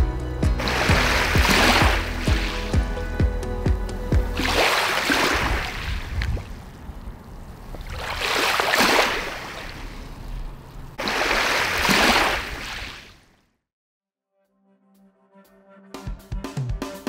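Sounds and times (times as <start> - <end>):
waves washing on shore: 0.6 - 2.8, 4.3 - 13.2.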